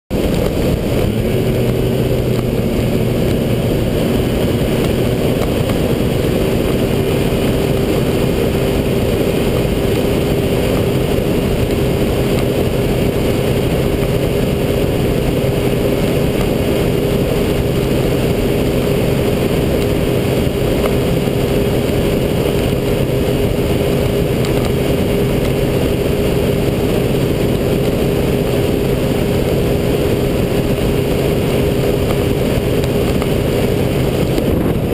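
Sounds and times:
rushing wind: 0:00.1 - 0:34.9
speedboat engine running: 0:00.1 - 0:34.9.

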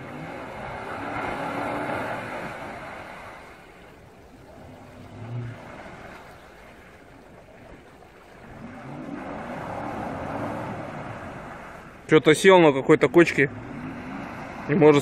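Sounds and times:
suv engine revving: 0:00.0 - 0:03.4, 0:08.5 - 0:12.0, 0:13.0 - 0:15.0
wheels churning water: 0:00.0 - 0:15.0.

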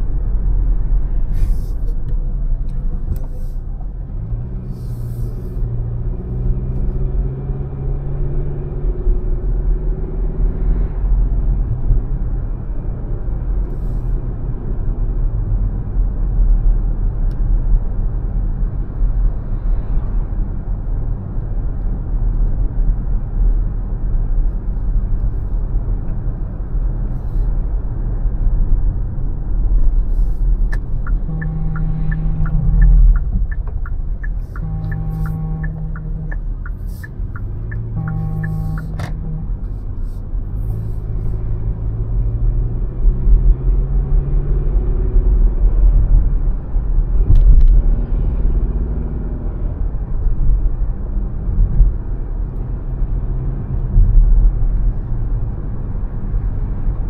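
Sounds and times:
car tyres and engine rumble: 0:00.0 - 0:57.0
low droning tone: 0:30.1 - 0:40.2.

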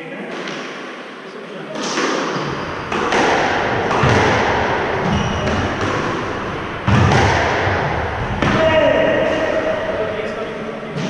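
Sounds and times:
squash ball hits echoing: 0:01.8 - 0:10.3.

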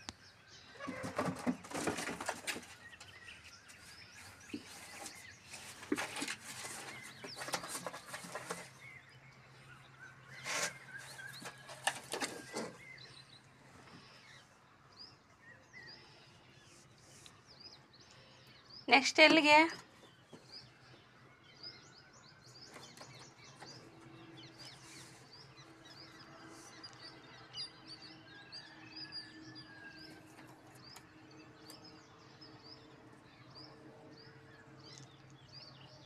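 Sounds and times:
cardboard boxes rustling and scraping: 0:04.1 - 0:09.0, 0:10.3 - 0:12.9.

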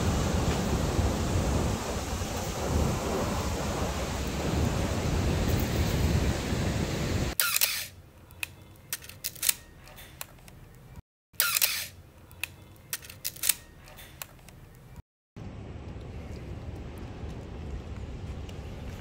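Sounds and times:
ocean surf: 0:00.0 - 0:07.3
wind on microphone: 0:00.0 - 0:07.4
camera shutter snap: 0:07.4 - 0:10.6, 0:11.4 - 0:14.6
film advance clicks: 0:07.4 - 0:10.7, 0:11.4 - 0:14.8.

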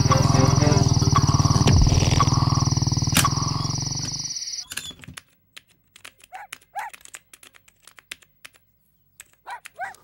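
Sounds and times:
motorcycle engine riding off: 0:00.0 - 0:04.3
typing on a keyboard: 0:05.1 - 0:10.0.

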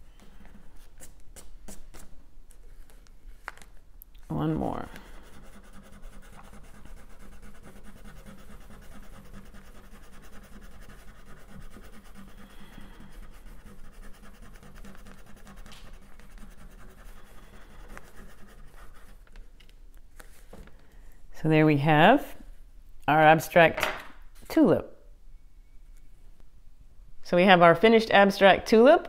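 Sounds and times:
crayon scratching on paper: 0:04.8 - 0:19.2.

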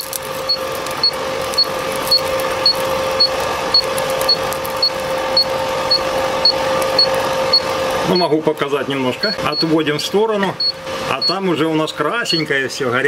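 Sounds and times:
steady hum: 0:00.0 - 0:12.9
short high beeps: 0:09.5 - 0:11.4.

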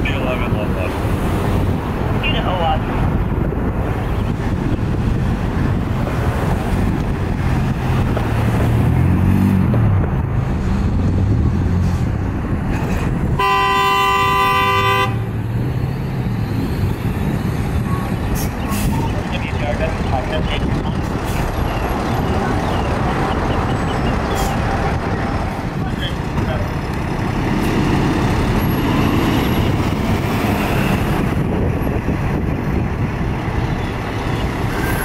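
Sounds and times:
heavy engine and traffic noise: 0:00.0 - 0:35.0
fire truck horn blast: 0:13.4 - 0:15.4.

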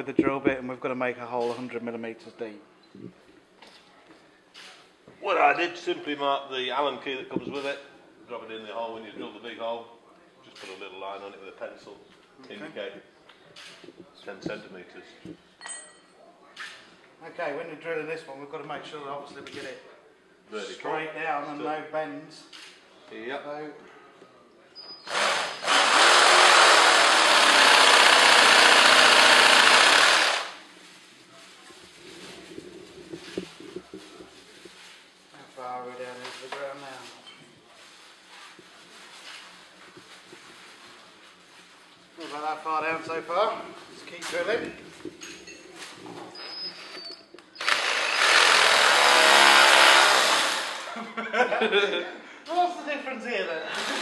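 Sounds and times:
drill boring into concrete: 0:25.1 - 0:30.6, 0:47.6 - 0:50.9, 0:53.7 - 0:54.0.

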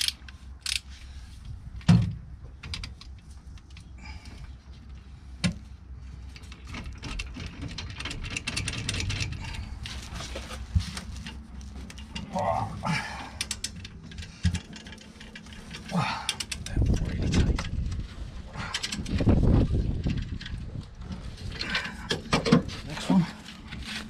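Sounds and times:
light clicking and rattling: 0:06.3 - 0:18.0.

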